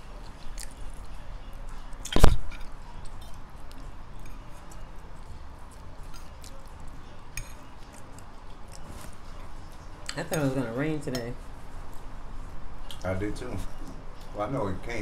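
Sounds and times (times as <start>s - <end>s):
people chewing food: 0.0s - 15.0s
fork clicking against a plate: 7.3s - 8.8s.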